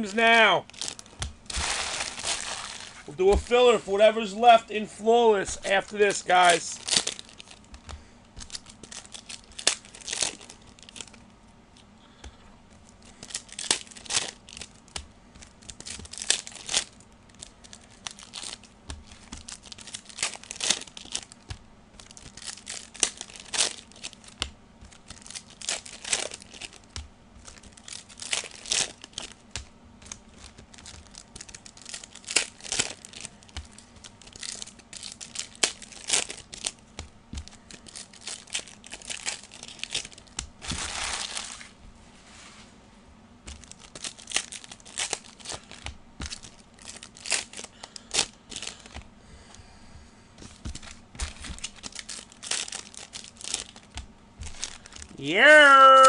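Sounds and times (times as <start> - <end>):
card pack wrappers tearing: 0.0 - 11.9, 12.8 - 41.7, 43.5 - 49.1, 50.4 - 56.0.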